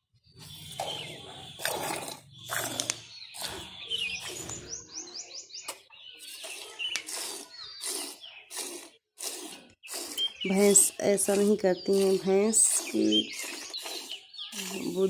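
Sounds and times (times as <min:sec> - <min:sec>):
bird chirping: 0:00.0 - 0:15.0
milk squirting into a pail: 0:01.6 - 0:03.6, 0:06.3 - 0:15.0.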